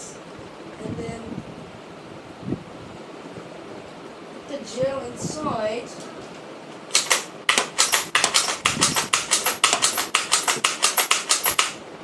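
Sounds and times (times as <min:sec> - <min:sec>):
toy blaster firing rapid shots: 0:06.9 - 0:11.8.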